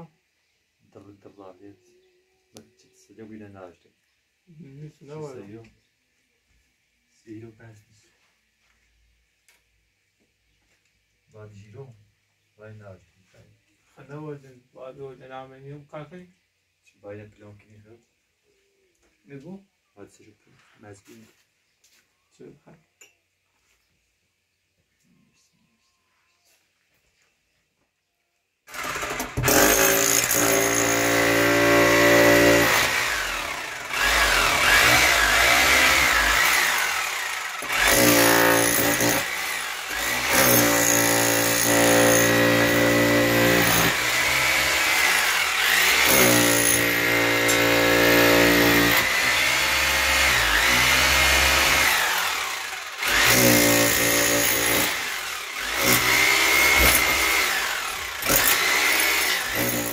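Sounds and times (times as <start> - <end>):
power tool cutting concrete: 28.7 - 59.9.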